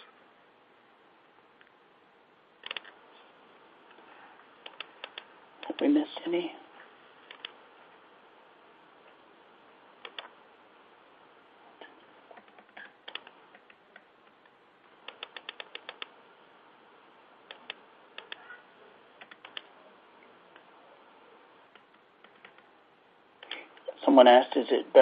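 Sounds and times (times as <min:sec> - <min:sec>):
faint hiss: 0:00.0 - 0:25.0
keyboard typing: 0:02.6 - 0:02.9, 0:04.6 - 0:05.8, 0:10.0 - 0:10.3, 0:12.3 - 0:14.1, 0:15.0 - 0:16.1, 0:17.5 - 0:18.5, 0:19.2 - 0:19.7, 0:21.8 - 0:22.7.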